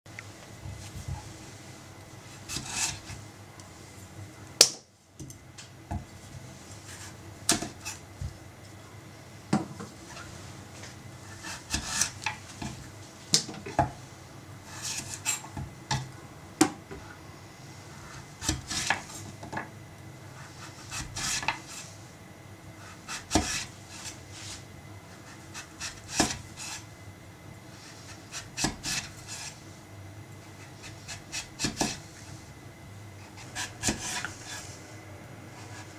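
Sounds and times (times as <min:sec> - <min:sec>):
knife grating through squash: 0:02.2 - 0:03.2, 0:11.2 - 0:12.7, 0:14.6 - 0:15.4, 0:20.3 - 0:22.0, 0:22.8 - 0:26.9, 0:27.7 - 0:29.6, 0:30.5 - 0:32.4, 0:33.2 - 0:34.8.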